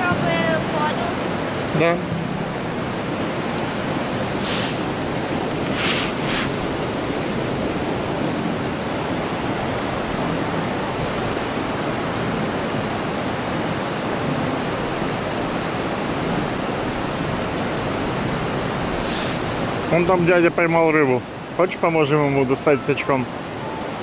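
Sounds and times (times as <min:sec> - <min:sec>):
river water rushing: 0:00.0 - 0:24.0
brief hissy sounds: 0:04.4 - 0:04.8, 0:05.7 - 0:06.6.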